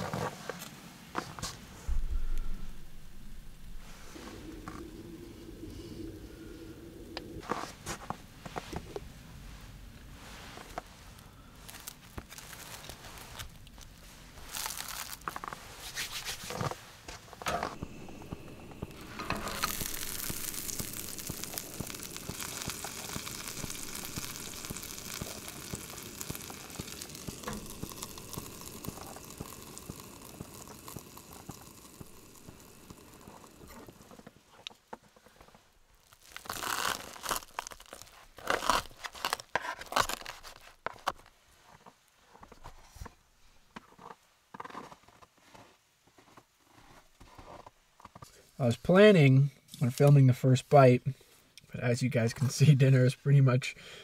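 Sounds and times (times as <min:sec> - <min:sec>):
food sizzling in a pan: 0:17.7 - 0:34.1.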